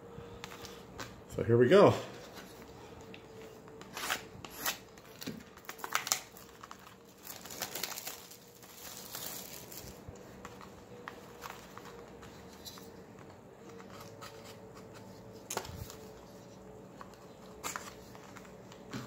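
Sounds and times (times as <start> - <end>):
plastic wrap crinkling: 3.9 - 12.8.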